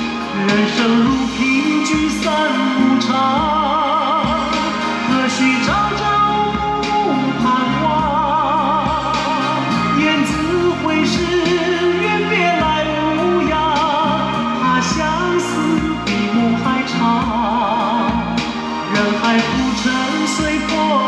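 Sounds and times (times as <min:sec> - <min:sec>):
instrumental backing: 0:00.0 - 0:21.0
person singing with vibrato: 0:00.0 - 0:21.0.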